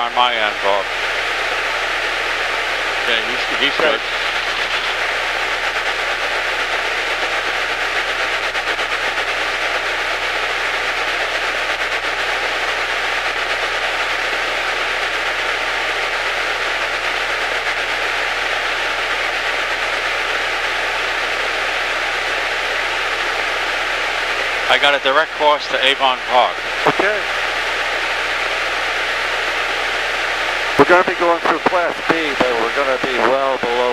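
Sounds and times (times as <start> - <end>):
intercom hiss: 0.0 - 0.9, 2.6 - 6.0, 24.4 - 27.4, 30.3 - 33.9
muffled engine drone: 0.0 - 33.9.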